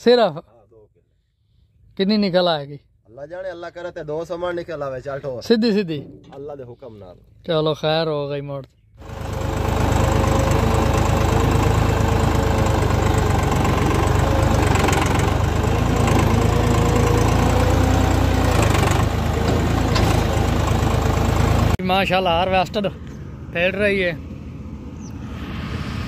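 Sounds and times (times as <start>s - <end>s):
tractor diesel engine running: 9.0s - 22.6s.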